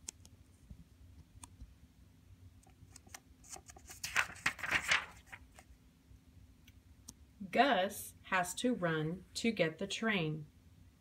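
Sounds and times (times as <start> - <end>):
book page turning: 2.9 - 5.7.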